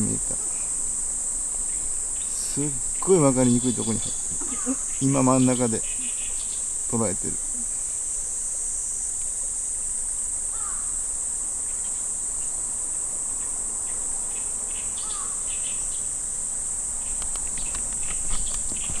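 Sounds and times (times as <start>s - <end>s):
insects droning: 0.0s - 19.0s
light ticks: 17.2s - 19.0s.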